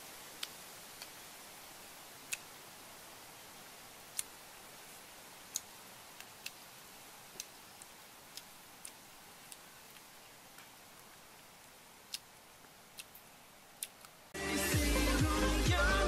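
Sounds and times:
steady hiss: 0:00.0 - 0:16.0
person chewing with mouth clicks: 0:00.4 - 0:01.2, 0:04.1 - 0:04.3, 0:05.5 - 0:06.6, 0:07.3 - 0:10.4, 0:12.1 - 0:12.3, 0:12.9 - 0:13.2, 0:13.8 - 0:14.2.

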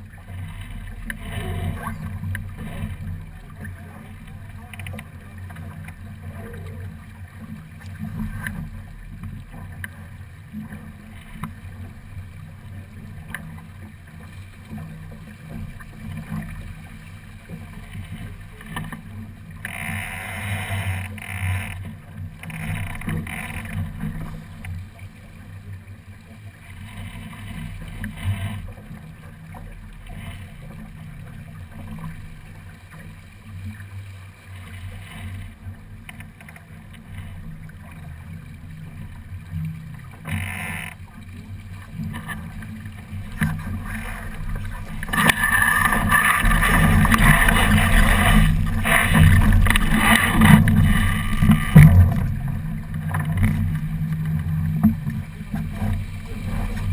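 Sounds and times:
water rushing along boat hull: 0:00.0 - 0:56.9
low rumble: 0:42.6 - 0:56.9.

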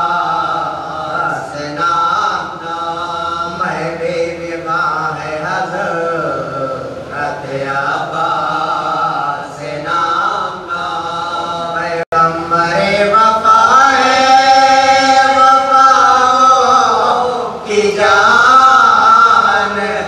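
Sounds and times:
man chanting: 0:00.0 - 0:20.0.

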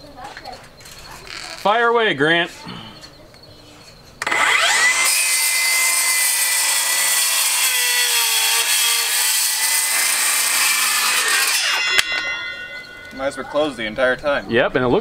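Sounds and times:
circular saw cutting wood: 0:04.2 - 0:13.8.

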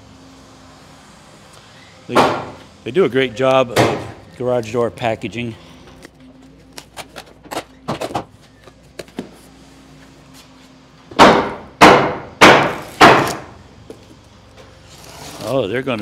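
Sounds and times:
loud ringing bangs: 0:02.1 - 0:02.6, 0:11.2 - 0:13.5.

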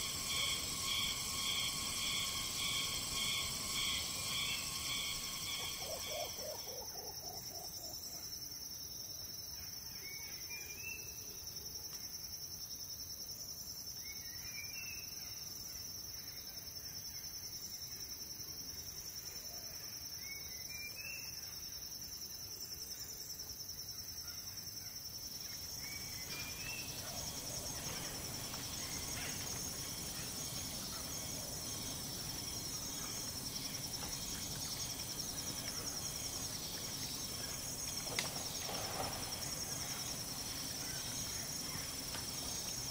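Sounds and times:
high-pitched insect drone: 0:00.0 - 0:07.7
low rustling: 0:26.4 - 0:42.9.

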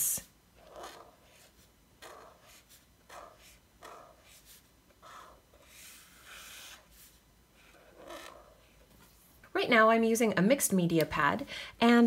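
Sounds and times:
brush marker scratching on paper: 0:00.6 - 0:08.8.

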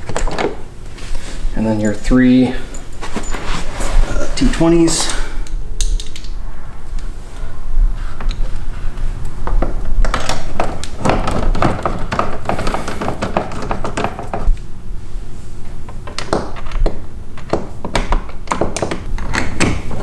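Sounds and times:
screwdriver clicking: 0:05.4 - 0:06.3.

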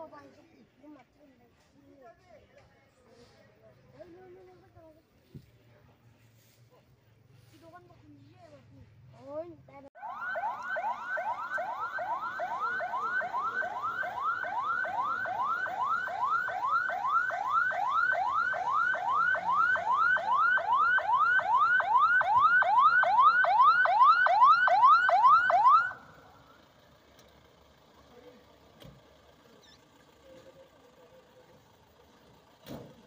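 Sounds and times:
ambulance siren rising sweeps: 0:10.0 - 0:26.7.

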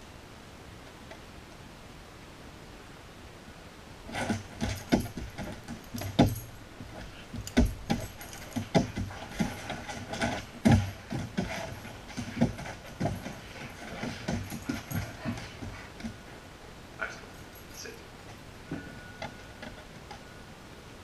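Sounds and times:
dog claws scrabbling on wooden floor: 0:04.1 - 0:16.2
collar tags jangling: 0:04.1 - 0:16.4, 0:17.0 - 0:18.0.

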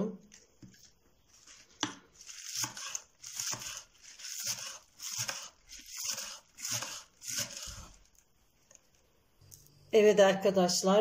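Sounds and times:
knife chopping green onions: 0:01.8 - 0:08.0.

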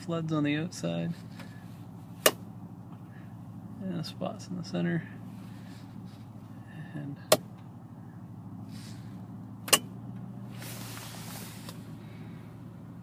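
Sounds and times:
car engine idling: 0:00.0 - 0:13.0
brief rustle: 0:10.5 - 0:11.8.

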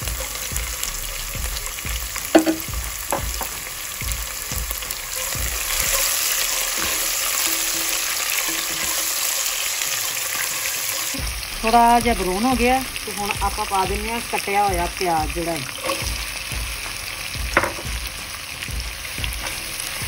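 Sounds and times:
hot oil sizzling: 0:00.0 - 0:20.0
spatula stirring pot: 0:05.1 - 0:11.2, 0:15.6 - 0:16.4.

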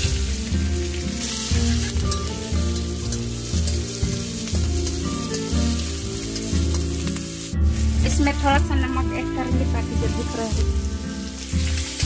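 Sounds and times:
background music beat: 0:00.0 - 0:12.0
metal ladle scraping pan: 0:00.0 - 0:12.0
onions sizzling in oil: 0:00.0 - 0:12.0.

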